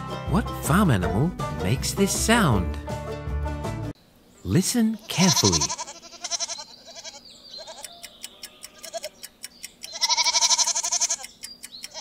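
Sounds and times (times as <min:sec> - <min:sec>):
goat bleating: 0:04.9 - 0:12.0.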